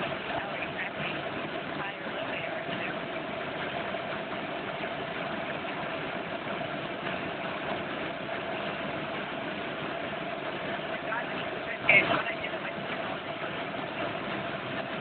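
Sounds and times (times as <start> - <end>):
helicopter engine and rotor noise: 0.0 - 15.0.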